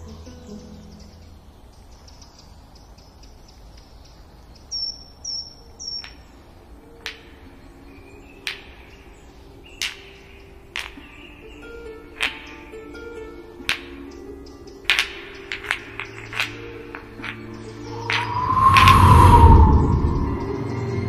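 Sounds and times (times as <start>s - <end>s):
high bird chirps: 0.0s - 6.4s, 13.9s - 21.0s
sharp cracks: 8.4s - 11.2s, 12.1s - 12.8s, 13.6s - 20.5s.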